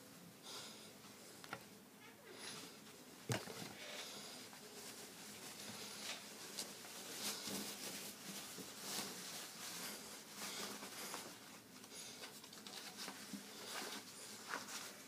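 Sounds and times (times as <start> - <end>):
clothing rustling: 2.4 - 15.0.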